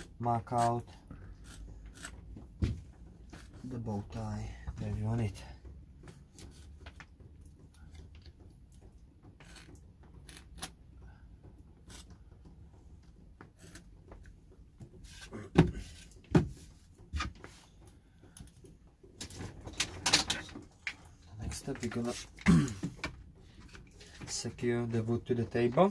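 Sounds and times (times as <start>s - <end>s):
pen scratching on wood: 1.3s - 2.2s.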